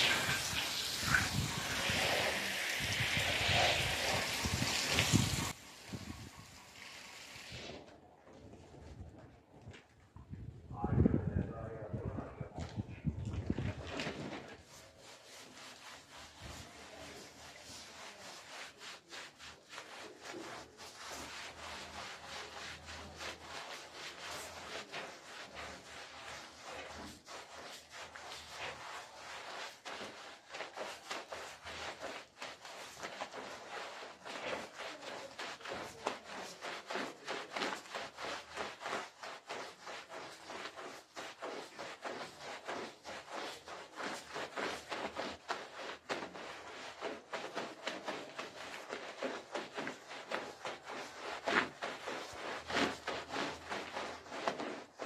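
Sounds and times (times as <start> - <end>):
broom scrubbing wet rug: 0.0 - 9.5, 12.3 - 55.0.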